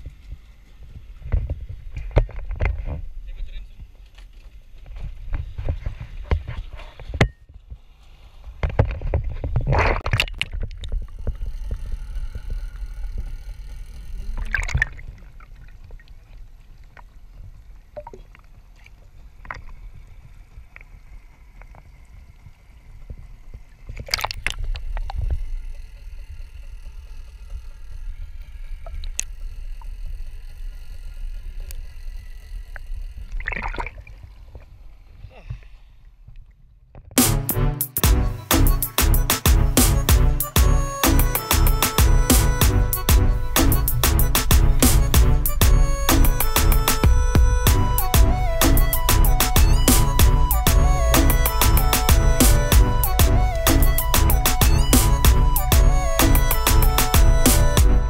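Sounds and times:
water splashing against boat: 5.0 - 26.3, 32.6 - 36.4
steady low rumble: 39.2 - 58.0.

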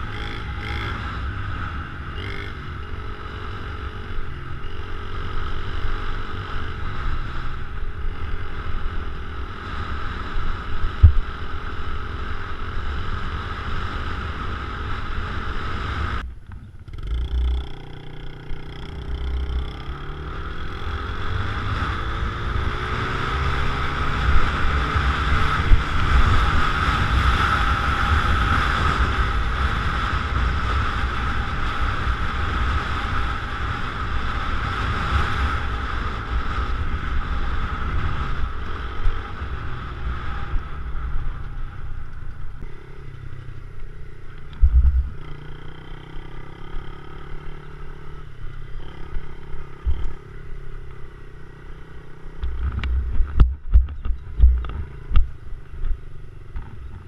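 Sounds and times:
dirt bike engine running: 0.0 - 57.0
wind noise on microphone: 20.6 - 42.5, 44.5 - 45.2, 52.4 - 56.0
low thumps: 44.5 - 45.2, 52.4 - 55.4.

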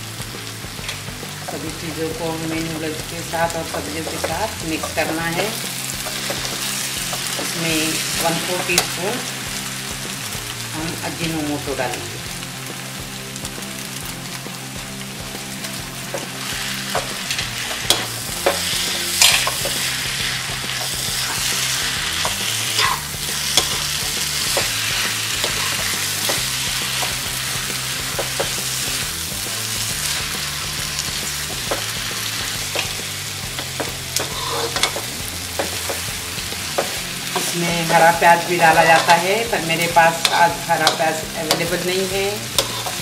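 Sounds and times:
noodles sizzling in a wok: 0.0 - 43.0
spatulas scraping against a pan: 3.3 - 9.0, 16.1 - 29.1, 29.7 - 43.0.

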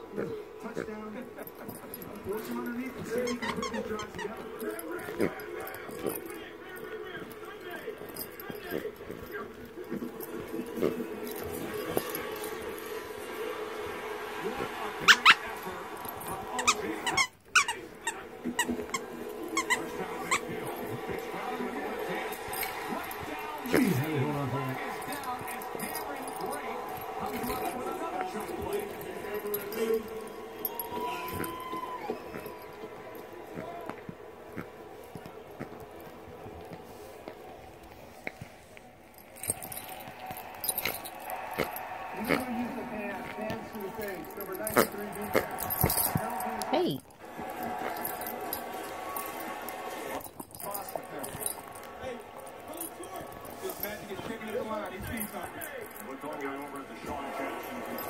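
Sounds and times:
low background murmur: 0.0 - 58.0
dog collar tags jingling: 0.1 - 58.0
dog toy squeaking: 1.6 - 5.4, 15.0 - 15.6, 16.2 - 21.2, 30.7 - 32.7.

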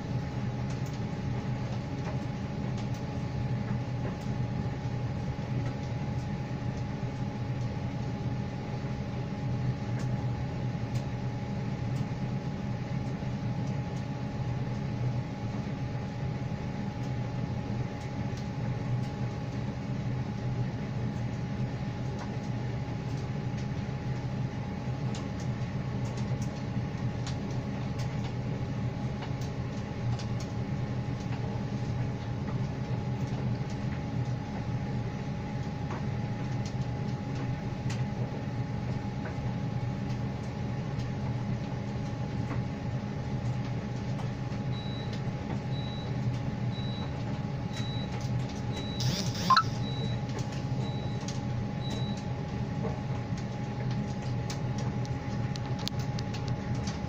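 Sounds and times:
tumble dryer motor hum: 0.0 - 57.0
short high beeps: 48.9 - 50.1.

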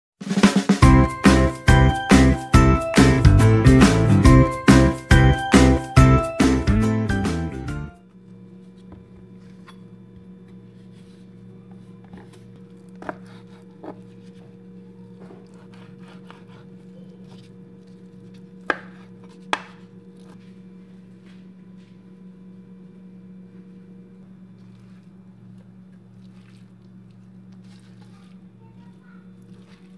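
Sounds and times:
steady low hum: 0.8 - 29.9
knife slicing raw chicken: 15.3 - 17.4
knife knocking on cutting board: 18.7 - 19.8.

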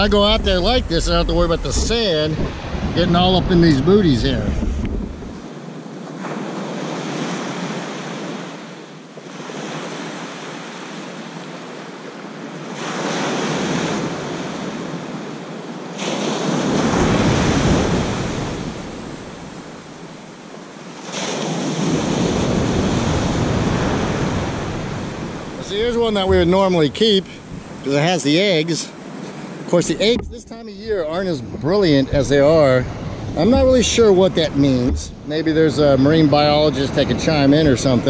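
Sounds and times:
wind rumble on microphone: 0.0 - 5.5, 21.9 - 27.9, 29.9 - 38.0
surf breaking on beach: 0.0 - 11.4, 15.9 - 38.0.

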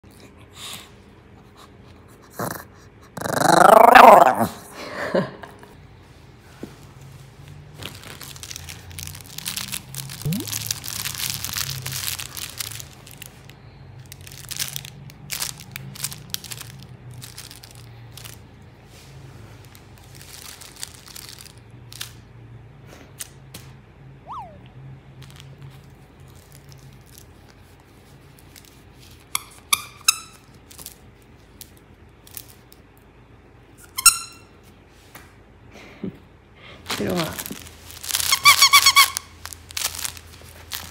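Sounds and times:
toy squeaks: 24.3 - 24.7, 38.2 - 39.2.

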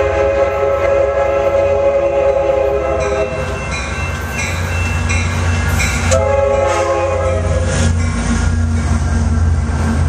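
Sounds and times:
train air horn chord: 0.0 - 3.4, 6.1 - 7.8
locomotive rumbling past: 0.0 - 10.0.

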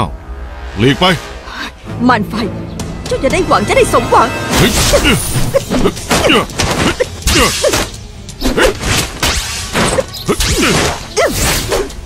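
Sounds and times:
dramatic background music: 0.0 - 12.0
sharp thwacking hits: 4.5 - 12.0.

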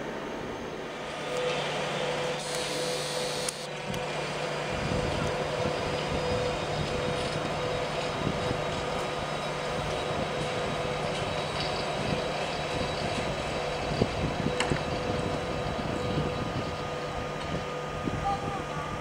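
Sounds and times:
electric locomotive passing: 0.0 - 19.0.

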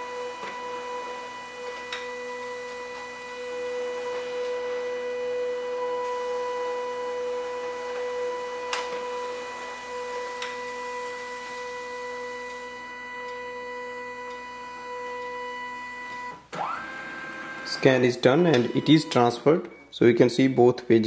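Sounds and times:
scanner mechanical whine: 0.0 - 20.7.

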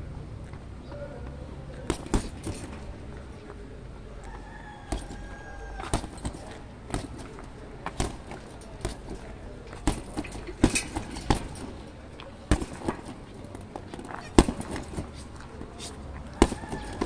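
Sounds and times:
boxing gloves hitting heavy bag: 1.8 - 3.0, 4.9 - 17.0.

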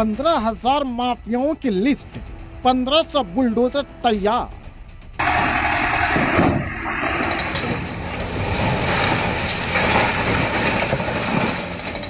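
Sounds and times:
demolition machine engine running: 5.2 - 12.0
masonry breaking: 5.2 - 12.0.

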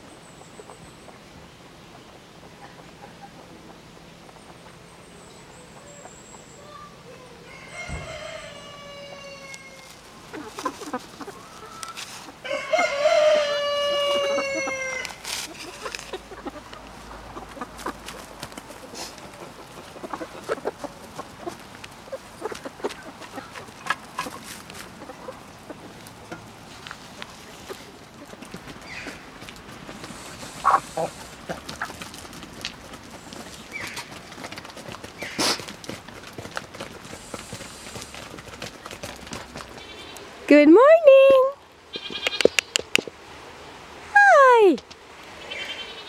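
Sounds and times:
hens pecking at grain: 0.0 - 40.5, 41.6 - 43.8
rooster crowing: 7.4 - 10.0, 11.7 - 15.2.

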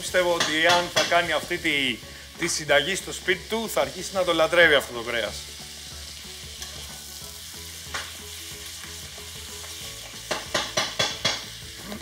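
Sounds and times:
meat and onions sizzling in a pan: 0.0 - 12.0.

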